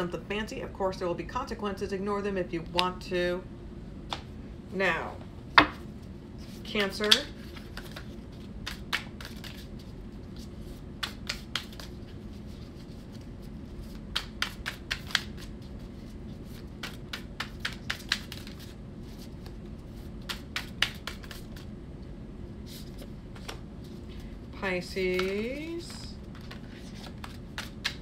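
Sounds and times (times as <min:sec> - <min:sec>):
steady low hum: 0:00.0 - 0:28.0
cards clicking and slapping: 0:06.8 - 0:09.7, 0:11.0 - 0:12.0, 0:14.0 - 0:15.5, 0:16.6 - 0:18.7, 0:20.2 - 0:21.6, 0:26.3 - 0:28.0.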